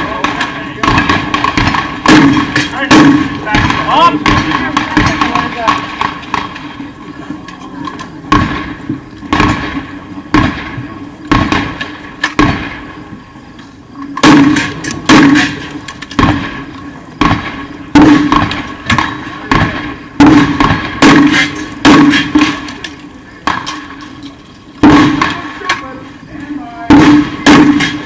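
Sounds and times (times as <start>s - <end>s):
gunshots with echo: 0.0s - 6.7s, 8.3s - 13.0s, 14.2s - 22.8s, 24.8s - 25.7s, 26.9s - 28.0s.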